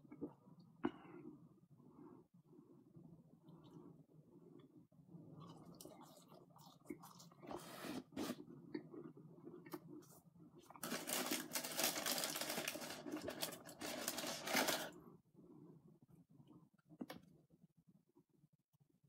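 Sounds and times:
crackling rustle: 10.8s - 14.9s.

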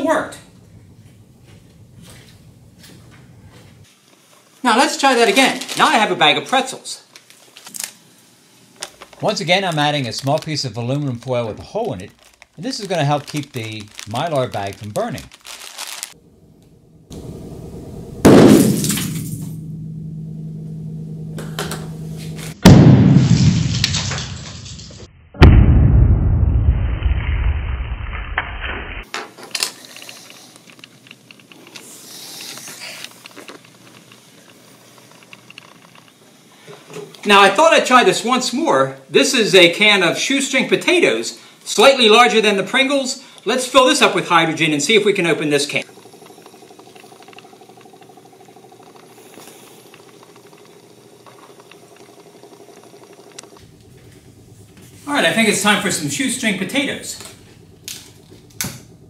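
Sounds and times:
sharp explosion bang: 18.1s - 19.8s, 22.5s - 24.3s, 25.4s - 28.0s
faint ticks and clicks: 45.8s - 55.8s.

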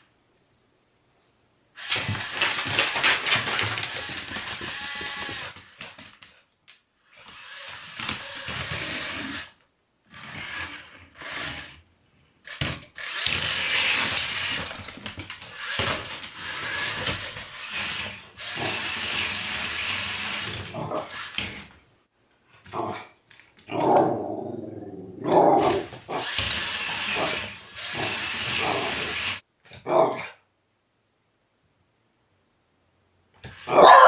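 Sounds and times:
toy robot motors whirring: 1.8s - 5.8s, 7.1s - 11.8s, 12.4s - 21.7s, 25.6s - 29.4s.

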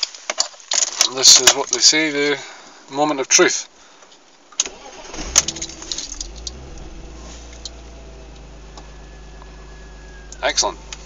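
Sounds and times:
car engine idling: 4.7s - 11.0s.

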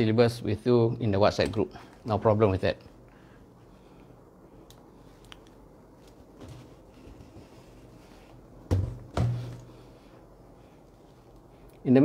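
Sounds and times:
dull thumps: 8.6s - 9.8s.

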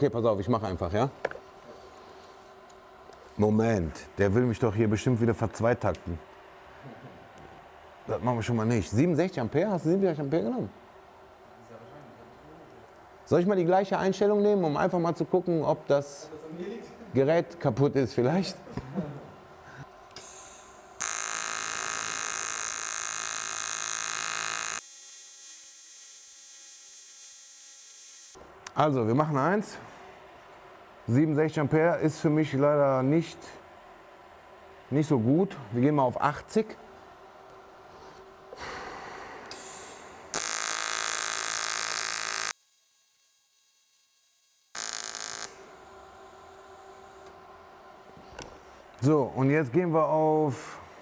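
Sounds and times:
welding arc buzzing hiss: 20.0s - 28.5s, 37.6s - 47.4s
welding machine hum: 20.1s - 28.4s, 39.6s - 47.4s.

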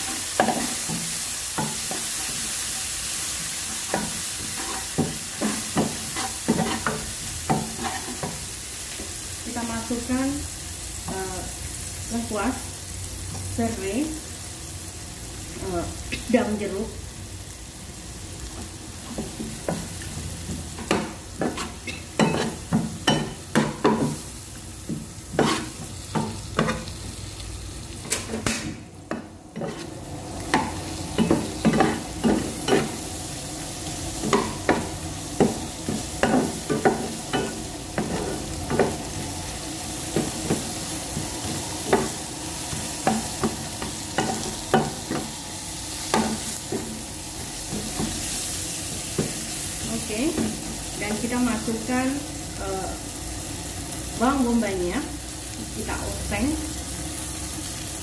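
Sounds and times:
spice paste sizzling in a pan: 0.0s - 58.0s
metal spatula scraping a pan: 3.8s - 8.3s, 21.4s - 23.4s, 25.3s - 27.0s, 29.6s - 30.0s.

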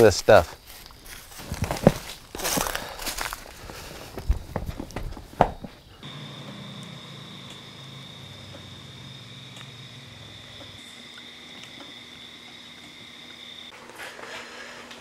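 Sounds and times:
insects trilling: 0.0s - 14.7s
campfire crackling: 0.0s - 14.8s
low hum: 5.9s - 13.0s.

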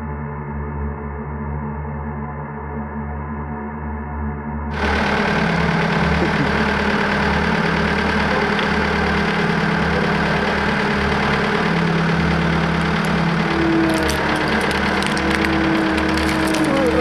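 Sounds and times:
road roller engine running: 4.7s - 17.0s.

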